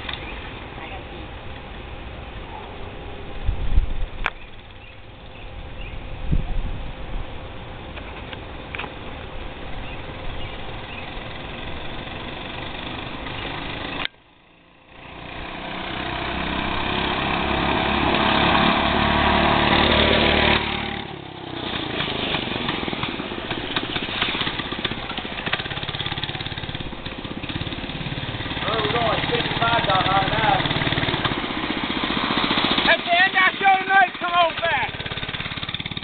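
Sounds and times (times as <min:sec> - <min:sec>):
minibike engine running: 0:09.7 - 0:36.0.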